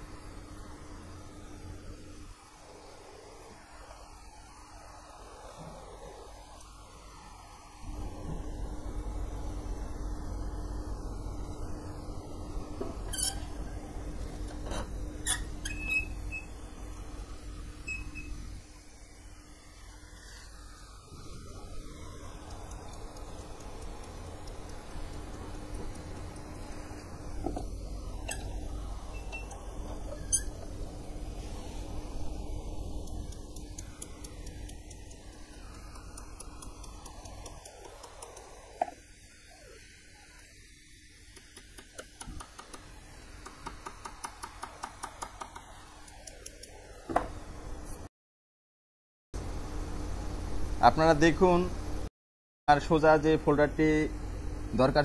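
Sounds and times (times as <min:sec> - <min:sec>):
steady low hum: 0:00.0 - 0:48.1, 0:49.4 - 0:52.1, 0:52.7 - 0:55.0
faint squeaks: 0:13.0 - 0:13.6, 0:29.2 - 0:30.7.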